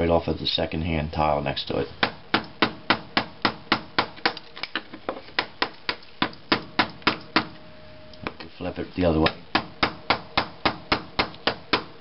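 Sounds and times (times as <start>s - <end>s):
hammer striking chisel: 2.0s - 4.4s, 5.4s - 7.5s, 9.2s - 12.0s.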